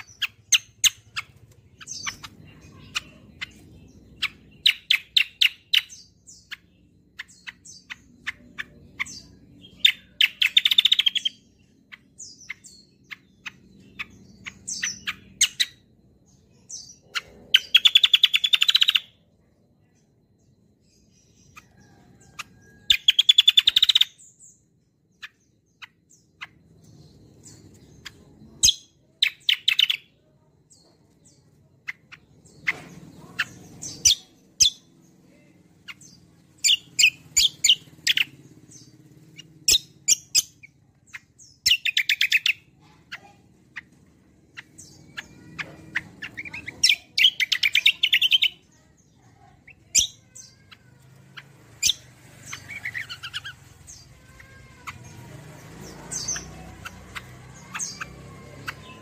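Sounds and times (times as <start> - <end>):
bird chirps and ticks: 0.0 - 15.9, 16.5 - 19.2, 21.5 - 24.2, 25.1 - 35.1
songbird singing rattling notes: 0.0 - 59.0.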